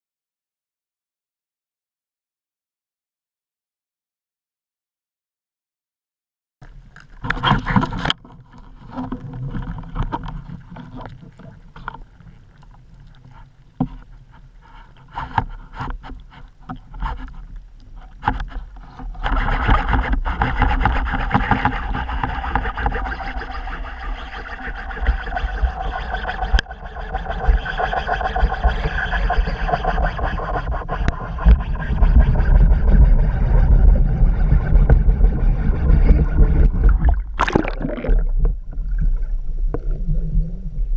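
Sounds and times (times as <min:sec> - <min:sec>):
low underwater rumble: 0:30.9 - 0:40.9
water rushing: 0:36.8 - 0:39.3
loud underwater burst: 0:36.8 - 0:40.1.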